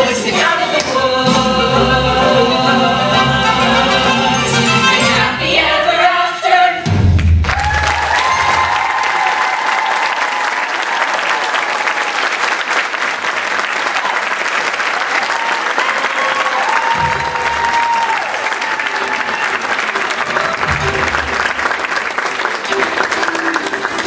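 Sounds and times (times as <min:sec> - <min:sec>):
audience clapping: 0:07.2 - 0:24.0
whooping cheers: 0:07.5 - 0:12.2, 0:15.0 - 0:19.9.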